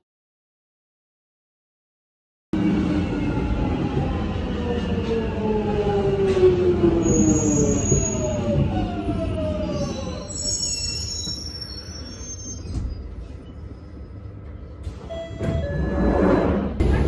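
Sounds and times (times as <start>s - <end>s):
train braking whine and rumble: 2.6s - 17.0s
high brake squeals: 7.0s - 8.4s, 9.7s - 13.6s
short tone: 15.0s - 16.7s.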